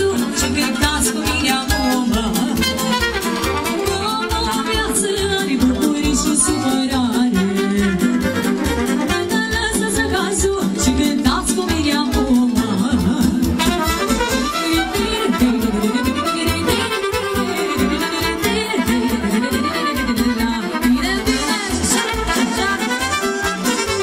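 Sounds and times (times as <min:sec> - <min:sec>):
woman singing: 0:00.0 - 0:23.9
fiddle: 0:00.0 - 0:24.0
brass: 0:00.1 - 0:05.4, 0:07.1 - 0:09.6, 0:13.4 - 0:24.0.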